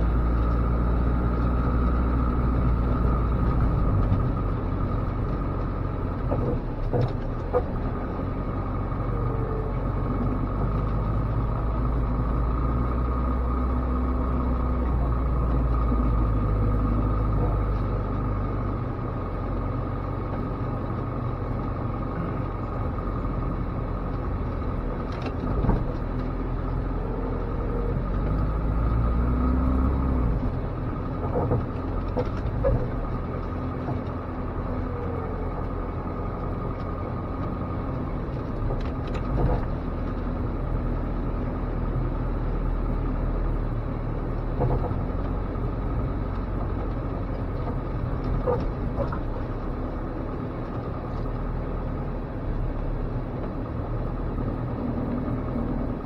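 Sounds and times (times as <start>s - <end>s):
truck engine running under load: 0.0s - 56.0s
snow plow clunks and knocks: 6.2s - 8.0s, 25.0s - 26.4s, 30.4s - 35.7s, 38.2s - 40.4s, 44.4s - 45.5s.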